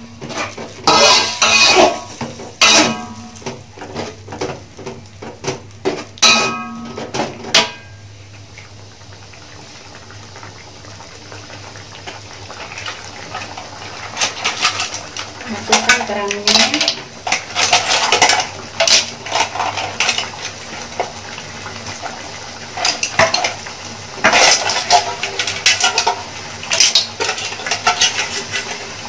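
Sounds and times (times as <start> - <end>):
metal spoon scraping a wok: 0.2 - 3.2, 26.7 - 29.0.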